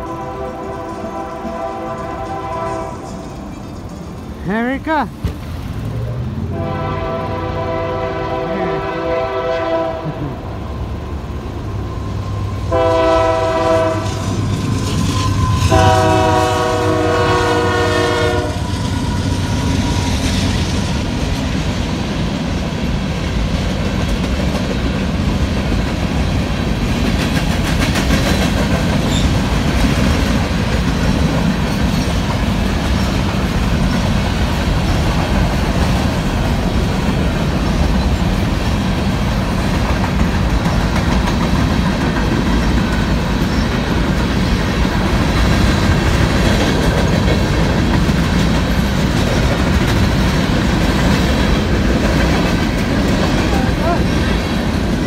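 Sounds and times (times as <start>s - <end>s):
locomotive horn blasts: 0.0s - 3.2s, 6.5s - 10.2s, 12.7s - 14.3s, 15.6s - 18.7s
train wheels clacking on rail joints: 0.0s - 4.4s, 12.8s - 55.0s
diesel locomotives rumbling: 0.0s - 55.0s.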